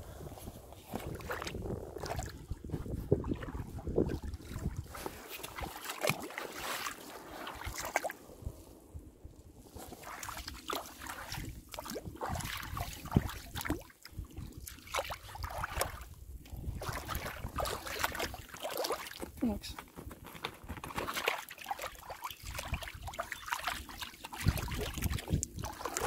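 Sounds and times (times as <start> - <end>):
wind buffeting microphone: 0.0 - 5.7, 11.2 - 18.3, 24.4 - 26.0
water lapping at hull: 0.1 - 8.6, 9.6 - 26.0
paddle splashing water: 0.4 - 8.3, 9.7 - 19.4, 20.8 - 26.0.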